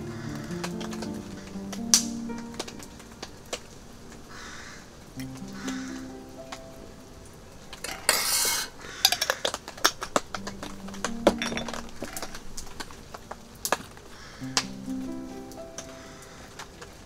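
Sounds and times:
metal spoon clinking cups: 11.3 - 12.2.

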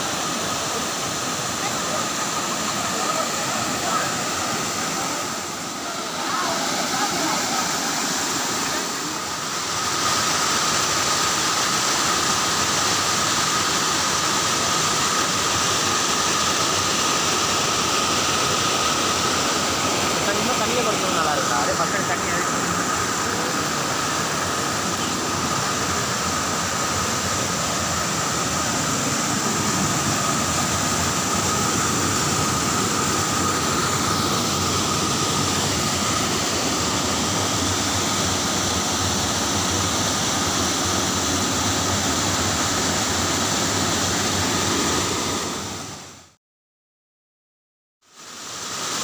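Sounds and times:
waterfall roaring over boulders: 0.0 - 46.4, 48.1 - 49.0.

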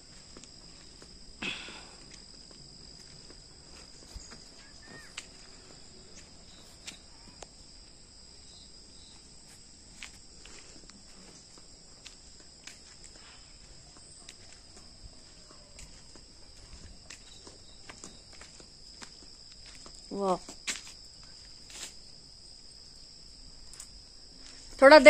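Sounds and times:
insects buzzing high tones: 0.0 - 14.0
footsteps on outdoor stairs: 0.0 - 22.1.

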